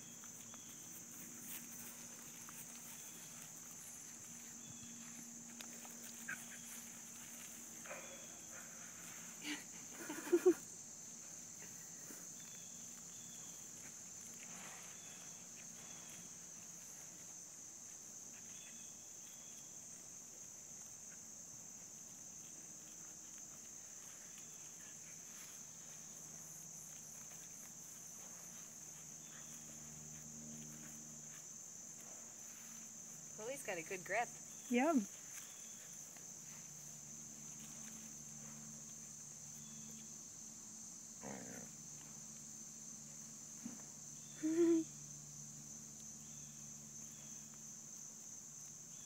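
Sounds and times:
high insect chorus: 0:00.0 - 0:49.0.

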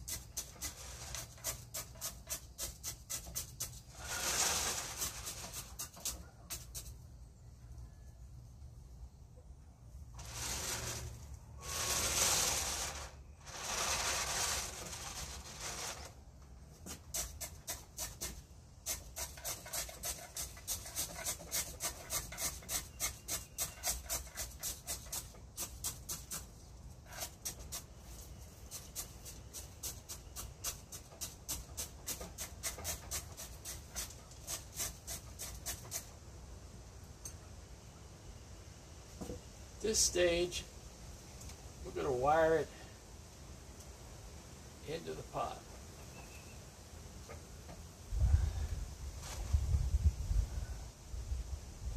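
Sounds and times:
chopstick scraping soil: 0:00.0 - 0:07.0, 0:10.2 - 0:16.2, 0:16.8 - 0:36.2.

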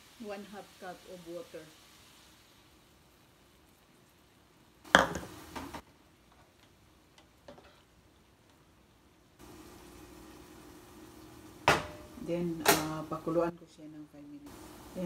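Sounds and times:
spatula stirring in frying pan: 0:04.9 - 0:08.6.

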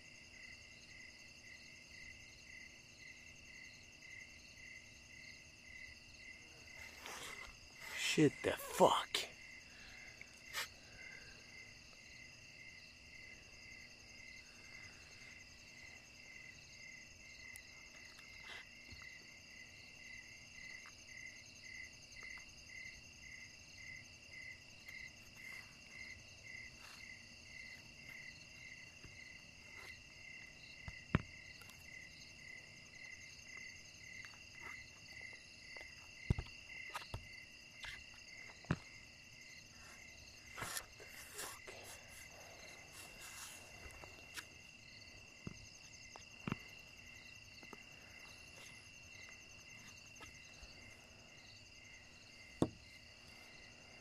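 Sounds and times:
crickets trilling: 0:00.0 - 0:54.0
pulsing cricket chirp: 0:00.0 - 0:54.0.

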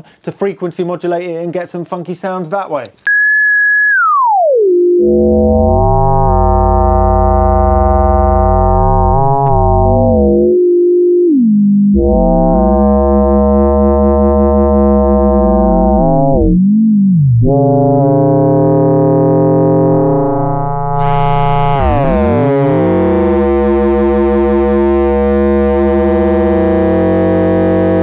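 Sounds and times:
buzzy electronic oscillator tone: 0:03.1 - 0:28.0.

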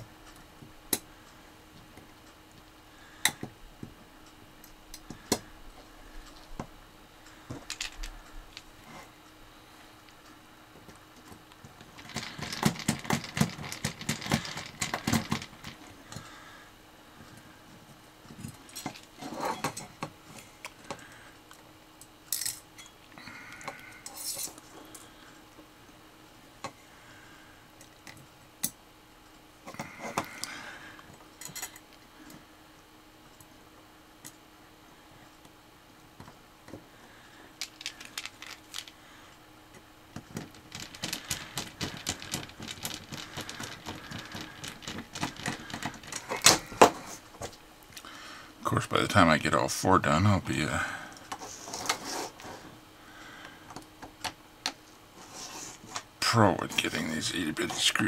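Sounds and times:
screws and metal parts clinking: 0:11.8 - 0:16.2, 0:24.0 - 0:24.6, 0:37.6 - 0:39.0, 0:40.3 - 0:46.9.

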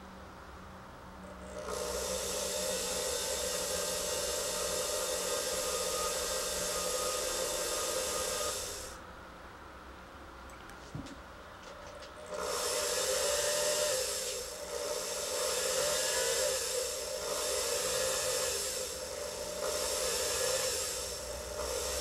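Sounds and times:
small power tool cutting acrylic: 0:01.4 - 0:09.0, 0:12.2 - 0:22.0.

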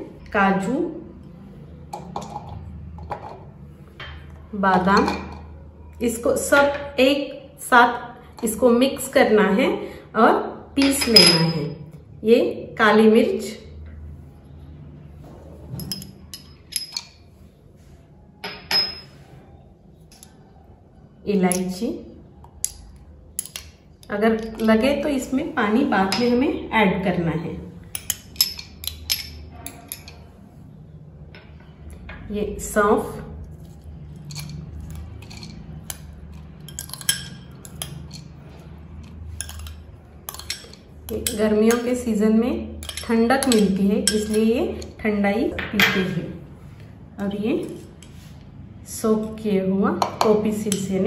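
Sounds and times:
glass bowls clinking: 0:10.8 - 0:11.8, 0:15.8 - 0:17.3, 0:18.4 - 0:19.2, 0:26.0 - 0:26.4, 0:27.9 - 0:30.3, 0:34.1 - 0:38.4, 0:39.3 - 0:41.9, 0:42.8 - 0:45.0.

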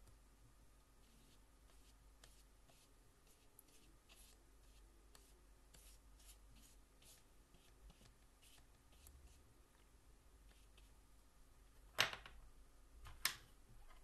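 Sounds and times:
brush swishing across paper: 0:01.0 - 0:09.4.

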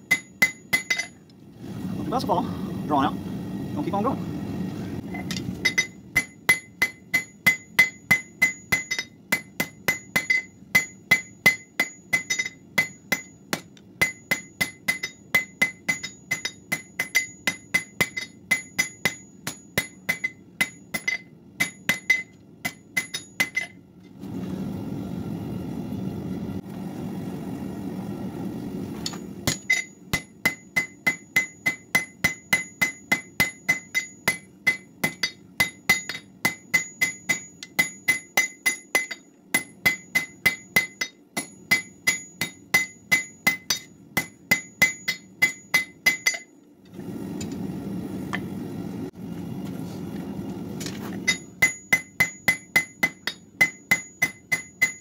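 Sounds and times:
hammer striking anvil: 0:00.0 - 0:01.2, 0:05.2 - 0:23.8, 0:29.0 - 0:46.5, 0:51.2 - 0:55.0.

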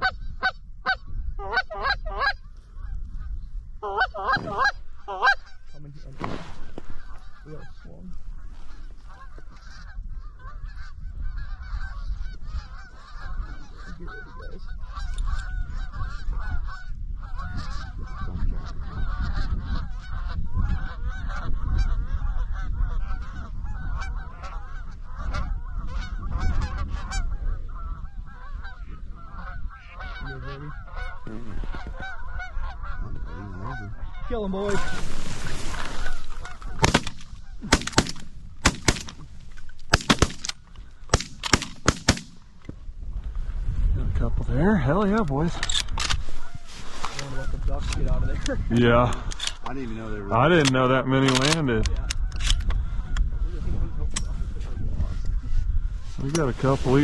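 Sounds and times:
flock of geese honking: 0:00.0 - 0:42.5, 0:44.6 - 0:48.6, 0:49.2 - 0:57.0.

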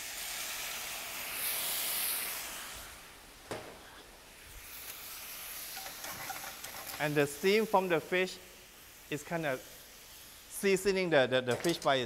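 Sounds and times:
liquid sizzling in hot pan: 0:00.0 - 0:03.4, 0:04.2 - 0:10.8.

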